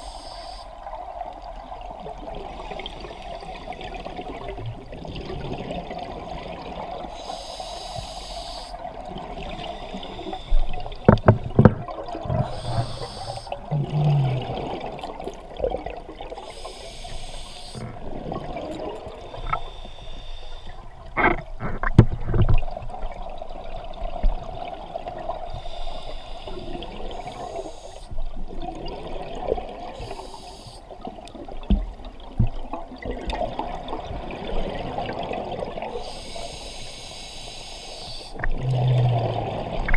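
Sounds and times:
steady watery rush: 0:00.0 - 0:39.9
exhaled bubbles underwater: 0:00.8 - 0:07.2, 0:08.7 - 0:19.8, 0:26.5 - 0:30.3, 0:30.9 - 0:36.3, 0:38.3 - 0:39.9.

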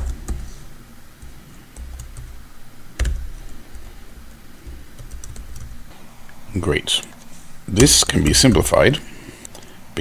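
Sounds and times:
computer keyboard typing: 0:01.2 - 0:02.4, 0:03.0 - 0:03.6, 0:04.2 - 0:05.8.

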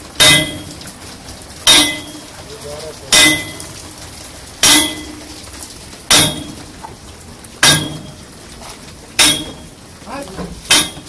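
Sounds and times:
hammer striking metal: 0:00.2 - 0:00.8, 0:01.7 - 0:02.2, 0:03.1 - 0:03.7, 0:04.6 - 0:05.2, 0:06.1 - 0:06.6, 0:07.6 - 0:08.2, 0:09.2 - 0:09.7, 0:10.7 - 0:11.0.

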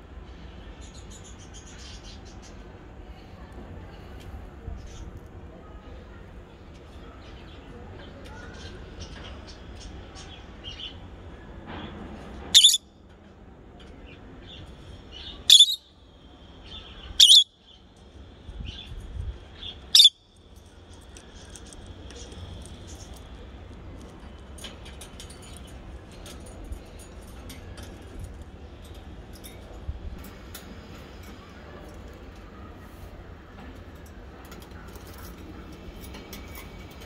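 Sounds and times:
faint bird chirps and ticks: 0:00.2 - 0:37.0
high-pitched bird calls: 0:12.5 - 0:12.9, 0:15.2 - 0:16.0, 0:16.7 - 0:17.8, 0:19.5 - 0:20.3.

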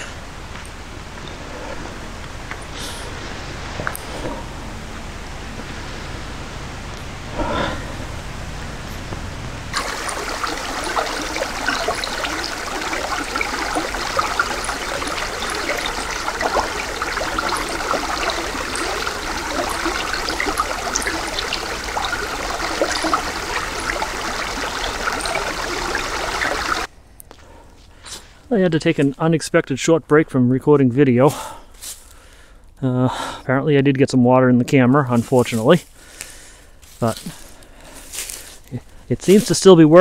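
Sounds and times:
brook running over rocks: 0:09.7 - 0:26.9.

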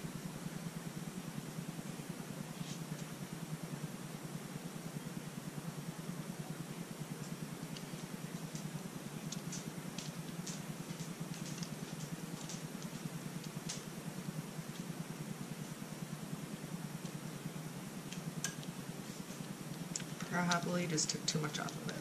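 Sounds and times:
steady low hum: 0:00.0 - 0:22.0
faint clicks and taps: 0:07.2 - 0:13.9, 0:18.1 - 0:22.0.

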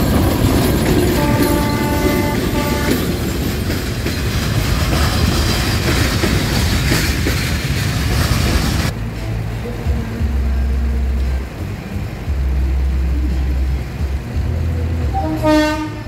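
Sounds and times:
wheels clattering over rail joints: 0:00.0 - 0:08.9
freight train rolling past: 0:00.0 - 0:16.0
train horn: 0:01.0 - 0:03.3, 0:15.0 - 0:16.0.

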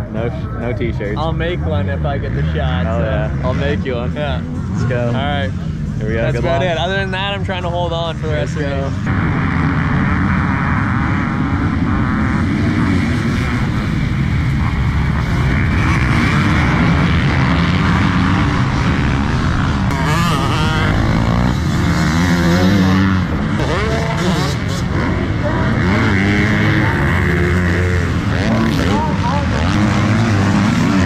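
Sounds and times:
dirt bike engines revving: 0:00.0 - 0:31.0.

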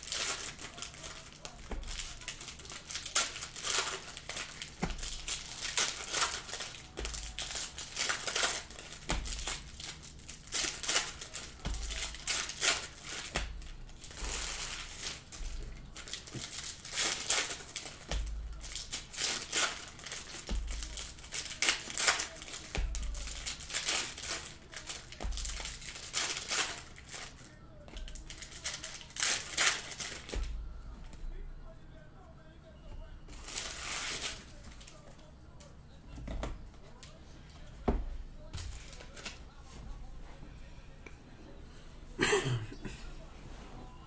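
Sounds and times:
foil wrappers crinkling and tearing: 0:00.0 - 0:30.6, 0:33.3 - 0:35.3, 0:38.4 - 0:39.4.

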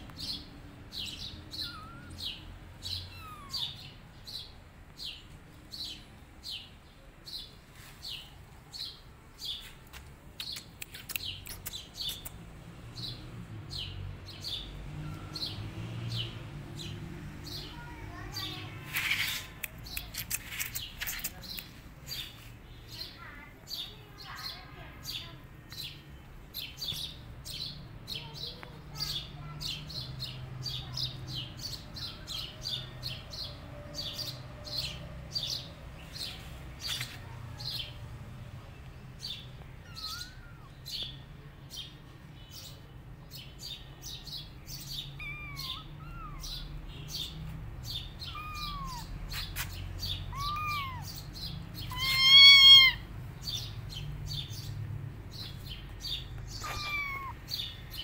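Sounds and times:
bird chirping: 0:00.0 - 0:09.7, 0:10.3 - 0:38.0, 0:38.6 - 0:58.0
kittens mewing: 0:01.4 - 0:04.0, 0:39.8 - 0:41.0, 0:45.0 - 0:46.7, 0:48.0 - 0:53.1, 0:56.4 - 0:58.0.

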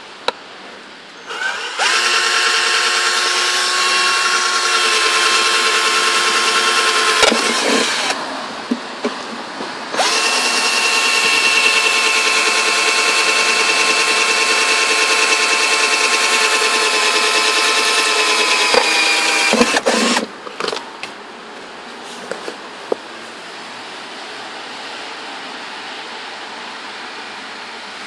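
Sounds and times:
cordless drill whining: 0:01.2 - 0:08.2, 0:09.9 - 0:20.3.

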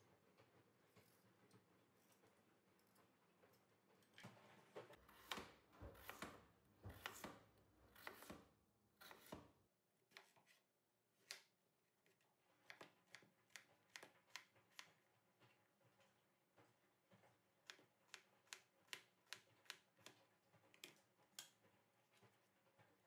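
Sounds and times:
knife cutting vegetables on board: 0:05.0 - 0:15.0.

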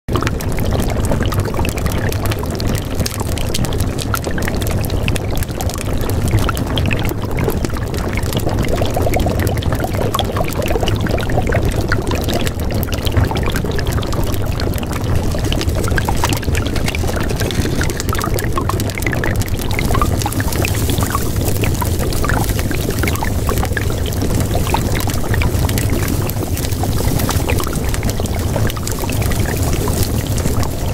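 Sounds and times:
running water: 0:00.1 - 0:30.9
small crackles: 0:00.1 - 0:30.9.

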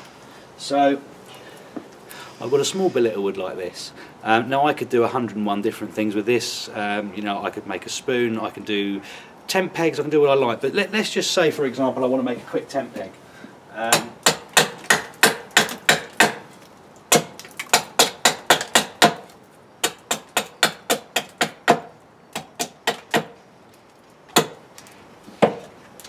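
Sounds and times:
hatchet chopping wood: 0:13.8 - 0:16.5, 0:17.1 - 0:23.4, 0:24.3 - 0:24.6, 0:25.3 - 0:25.7.

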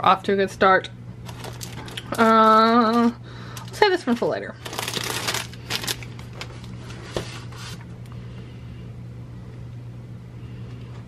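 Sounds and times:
steady low hum: 0:00.0 - 0:11.0
plastic bag crinkling: 0:01.2 - 0:07.0.

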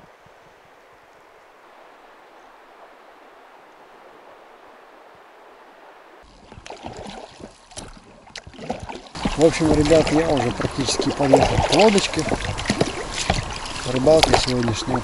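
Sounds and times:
river water rushing: 0:00.0 - 0:07.2, 0:08.7 - 0:15.0
oars splashing and knocking: 0:06.2 - 0:15.0.

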